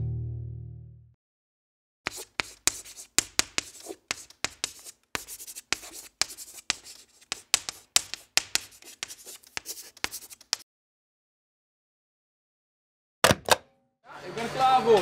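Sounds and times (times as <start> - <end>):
scratchy handwriting strokes: 2.1 - 10.6.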